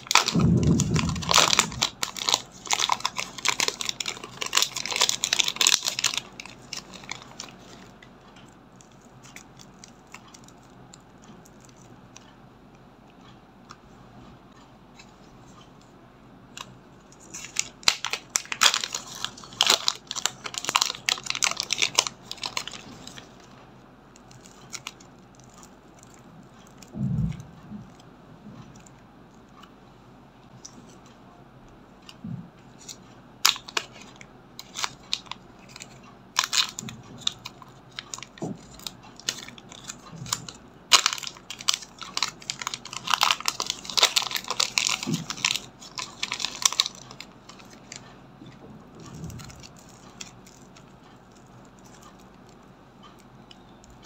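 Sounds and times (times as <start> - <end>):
plastic bag crinkling: 0.0 - 8.0, 17.2 - 23.5, 32.8 - 48.1, 49.0 - 53.2.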